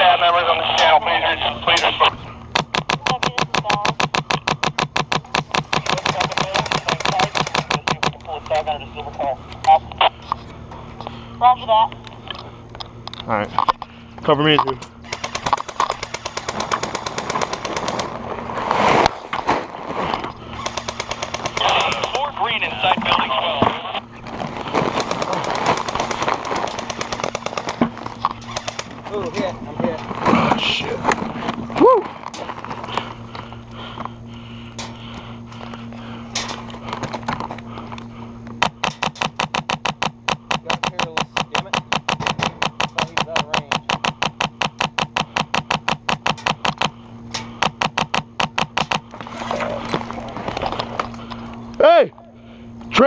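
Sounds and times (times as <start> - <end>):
airsoft rifle firing full-auto: 2.5 - 8.1, 15.0 - 18.2, 20.6 - 22.3, 24.8 - 29.0, 38.6 - 47.0, 47.6 - 49.1
gear scraping against microphone: 17.3 - 20.7.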